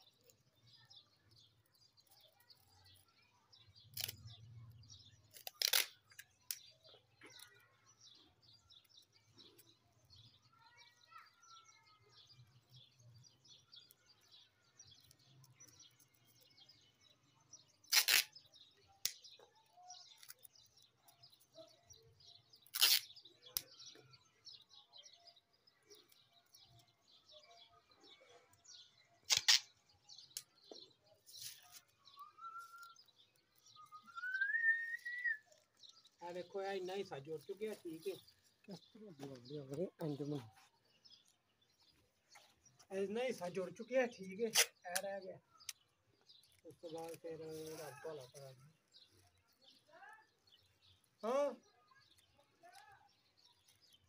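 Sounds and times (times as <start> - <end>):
birds chirping: 0.0 - 54.0
adhesive tape ripping: 3.9 - 4.3, 5.2 - 6.7, 17.7 - 19.3, 22.6 - 23.6, 29.2 - 30.4, 44.4 - 45.0.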